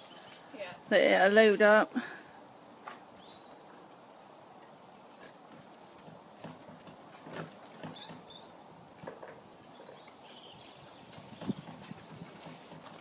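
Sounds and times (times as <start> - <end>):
tack and hooves knocking: 4.6 - 13.0.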